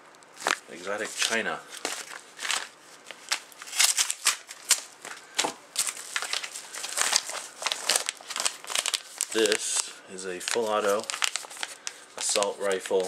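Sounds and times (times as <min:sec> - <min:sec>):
plastic bag crinkling: 0:00.3 - 0:13.0
envelope being slit open: 0:10.5 - 0:12.4.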